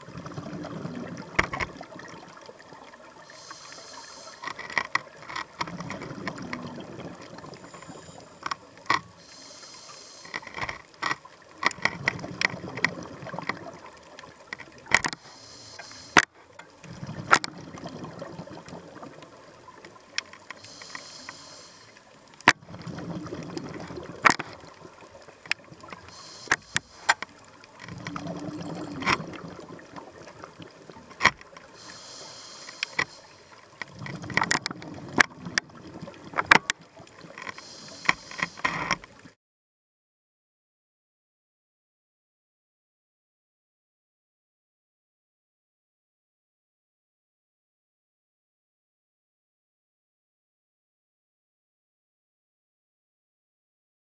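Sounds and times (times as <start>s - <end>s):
underwater breath and bubbles: 0.0s - 39.4s
sharp clicks: 15.8s - 16.3s, 25.5s - 27.3s.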